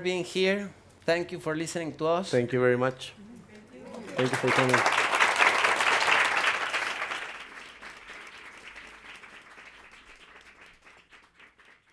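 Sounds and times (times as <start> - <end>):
audience applauding: 3.9 - 11.9.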